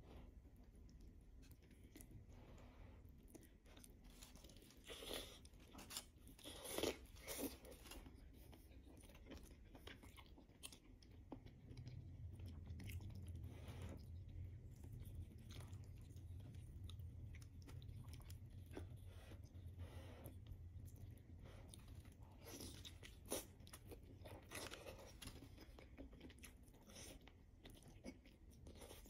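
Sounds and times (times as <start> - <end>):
low steady hum: 0.0 - 29.0
person biting and chewing: 3.4 - 8.3.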